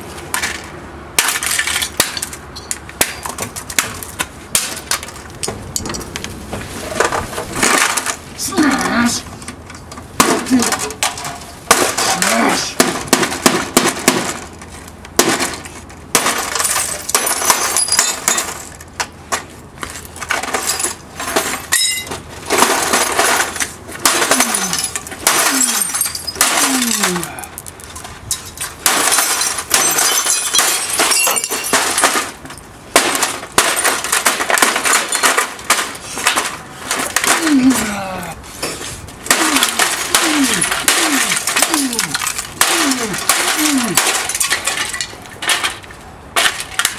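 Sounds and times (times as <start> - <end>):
plastic pieces clattering on asphalt: 0.2 - 46.9
hammer smashing plastic: 7.0 - 8.2, 10.2 - 18.8, 20.2 - 27.8, 28.6 - 38.0, 39.2 - 46.9.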